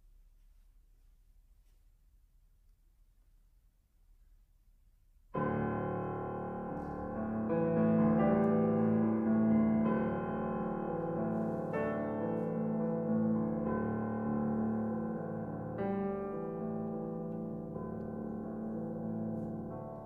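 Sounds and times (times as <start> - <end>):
grand piano chords: 5.3 - 20.0.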